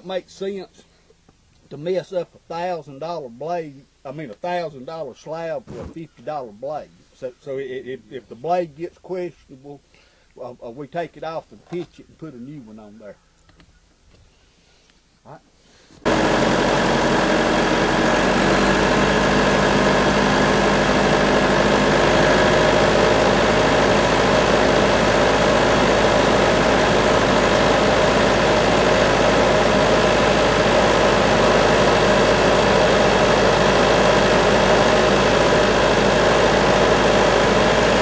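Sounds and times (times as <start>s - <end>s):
band sawmill running: 16.0s - 38.0s.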